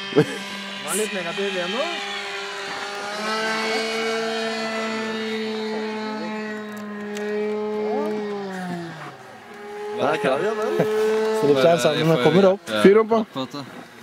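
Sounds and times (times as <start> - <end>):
model airplane engine running: 0.0 - 14.0.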